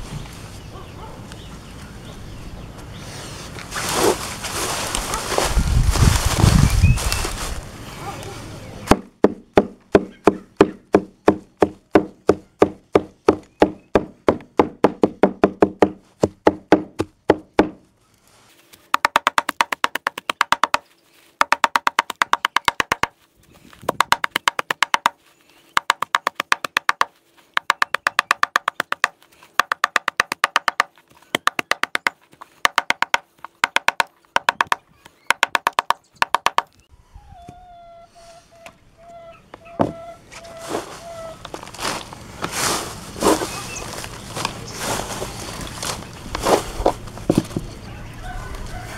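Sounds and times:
cleaver chopping grass: 8.9s - 17.8s, 18.8s - 25.2s, 25.8s - 36.7s.

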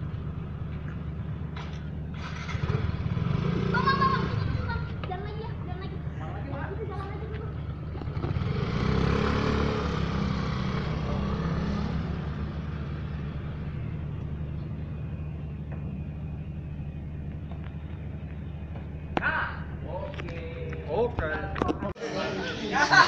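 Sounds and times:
scooter engine revving: 2.1s - 16.0s
steady low hum: 9.7s - 22.8s.

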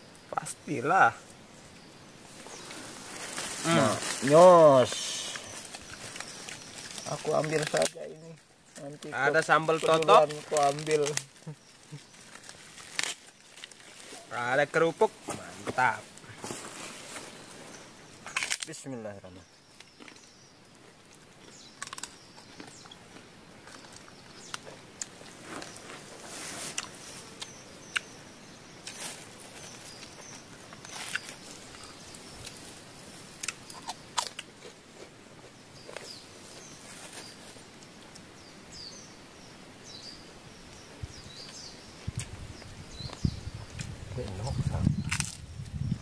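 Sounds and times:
crackers crunching: 2.7s - 14.8s, 18.2s - 18.8s, 19.7s - 28.1s, 28.8s - 38.3s, 43.8s - 45.8s.

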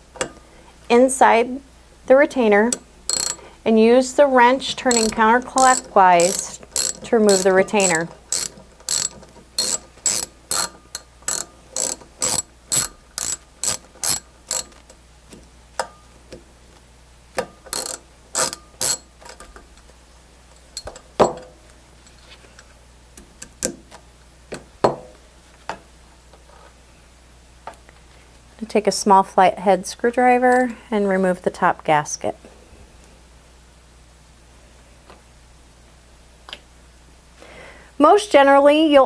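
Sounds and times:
ratchet wrench clicking: 3.1s - 3.4s, 4.8s - 14.7s, 17.7s - 19.4s
small metal parts handled: 3.1s - 3.5s, 4.7s - 14.8s.

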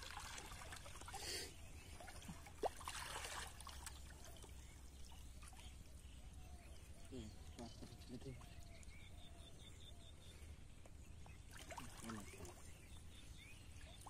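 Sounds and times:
shallow water splashing: 0.0s - 6.2s, 11.5s - 12.8s.

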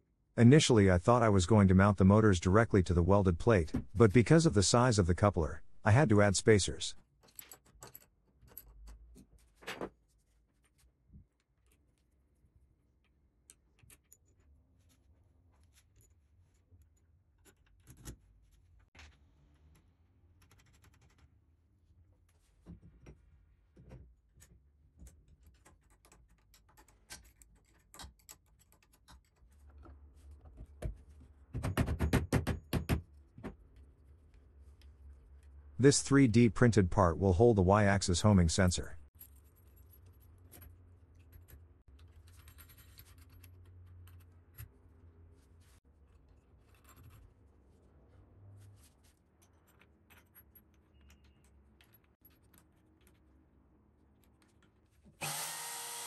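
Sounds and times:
metal parts clicking and knocking: 7.2s - 9.4s, 25.0s - 29.9s.

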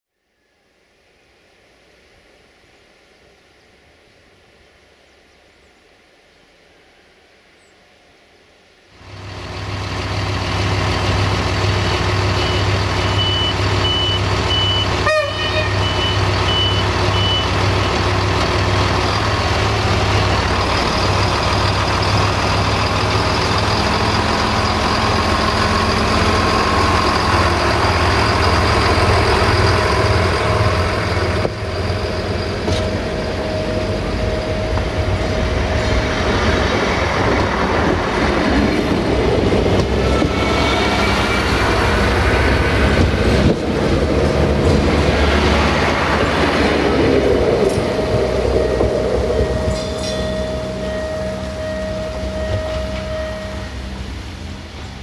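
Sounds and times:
diesel engines droning: 8.9s - 55.0s
wheels rumbling on rails: 8.9s - 55.0s
high beeps: 12.4s - 15.0s, 15.7s - 18.0s.

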